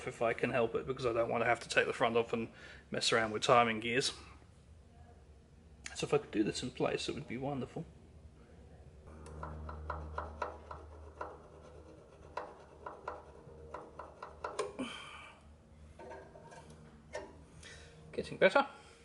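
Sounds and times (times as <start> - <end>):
file rasping on metal points: 9.3 - 14.7.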